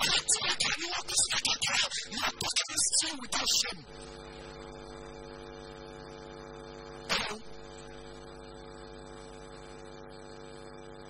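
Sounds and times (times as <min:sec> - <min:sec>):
electrical mains hum: 0:00.0 - 0:11.0
short sharp noise: 0:07.1 - 0:07.5.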